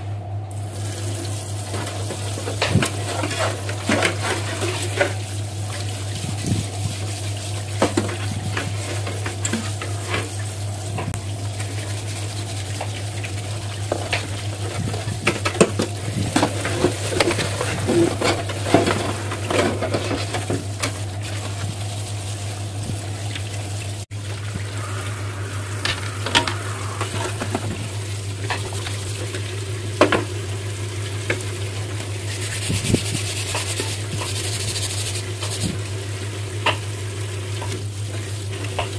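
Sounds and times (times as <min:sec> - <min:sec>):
steady low hum: 0:00.0 - 0:37.2
sponge scrubbing: 0:11.4 - 0:15.1, 0:32.0 - 0:35.9.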